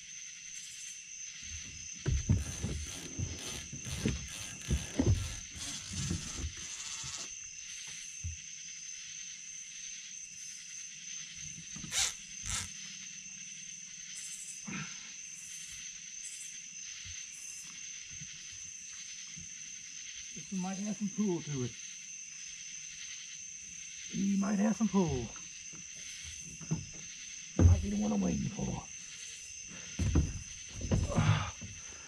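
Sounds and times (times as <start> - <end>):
night insects trilling: 0.0 - 32.0.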